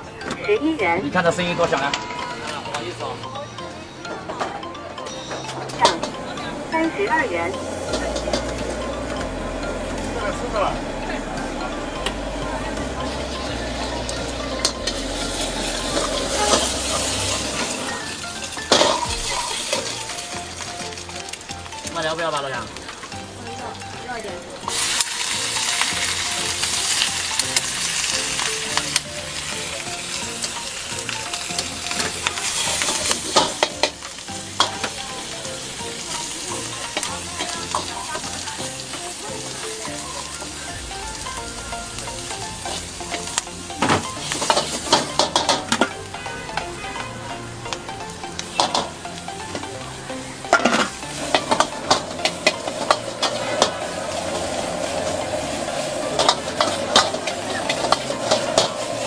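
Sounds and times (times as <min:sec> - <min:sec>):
vegetables sizzling in a wok: 0:05.0 - 0:59.0
metal ladle clanking against wok: 0:18.5 - 0:20.0, 0:32.0 - 0:35.0, 0:42.7 - 0:46.2, 0:50.5 - 0:55.1, 0:56.1 - 0:59.0.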